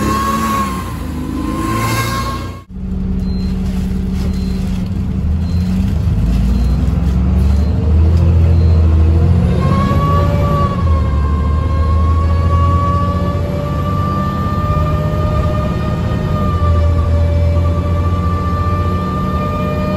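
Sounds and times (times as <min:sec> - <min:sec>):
high whine: 0:00.0 - 0:13.5
bus engine low drone: 0:00.0 - 0:19.9.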